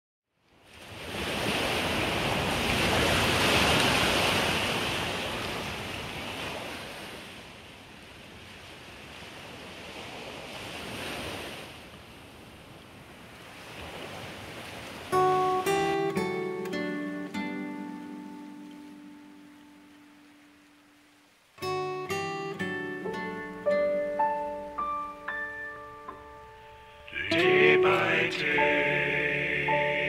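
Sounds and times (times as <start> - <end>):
ocean waves washing in: 0.6 - 30.0
plucked musical notes: 15.2 - 20.0, 21.6 - 30.0.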